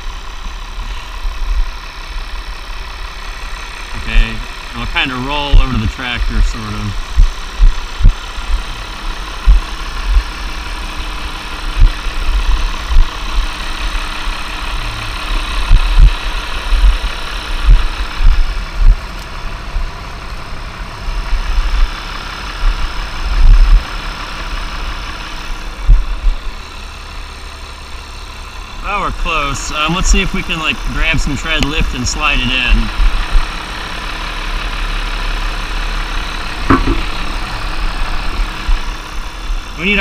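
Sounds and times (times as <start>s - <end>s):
engine hum: 0.0s - 40.0s
tire thumps and bumps: 4.0s - 26.7s, 31.0s - 34.0s, 35.7s - 40.0s.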